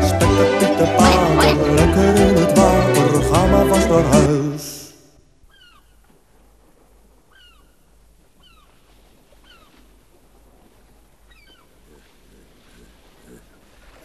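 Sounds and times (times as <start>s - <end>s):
seagull cries: 5.5s - 6.0s, 7.3s - 8.8s, 9.4s - 9.7s.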